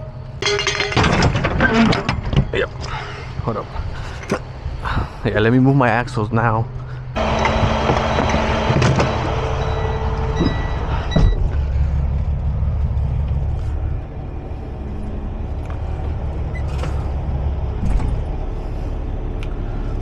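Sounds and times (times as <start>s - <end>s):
truck diesel engine running: 6.8s - 20.0s.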